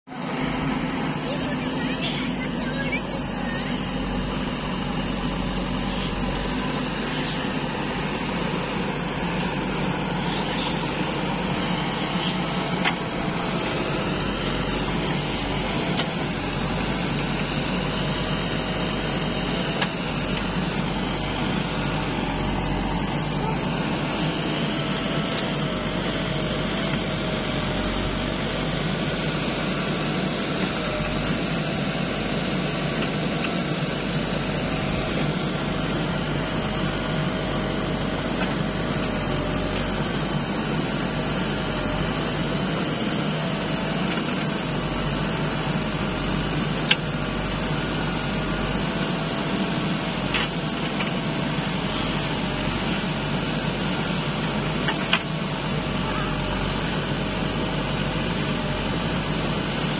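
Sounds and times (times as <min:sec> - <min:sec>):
diesel engine running: 0:00.1 - 0:59.9.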